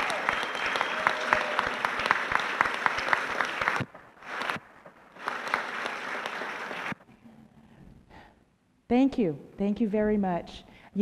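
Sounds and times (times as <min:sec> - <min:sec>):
audience clapping: 0:00.0 - 0:07.1.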